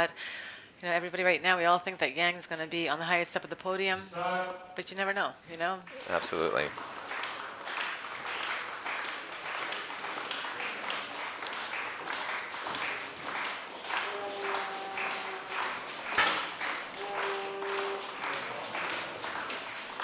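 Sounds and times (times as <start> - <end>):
spectators clapping in rhythm: 5.8 - 20.0
held musical notes: 13.8 - 20.0.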